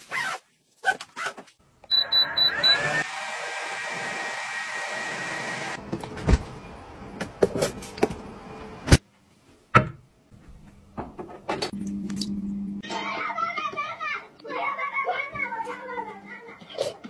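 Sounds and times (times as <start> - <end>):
control panel beeps: 1.9 - 2.9.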